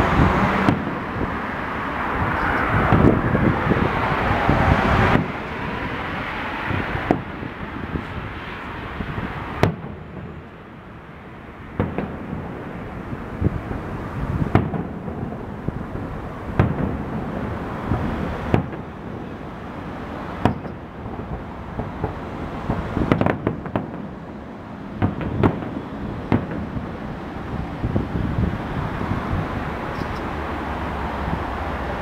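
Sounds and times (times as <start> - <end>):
firework shells bursting: 9.2 - 10.6, 11.7 - 13.4, 14.3 - 19.4, 20.2 - 27.3.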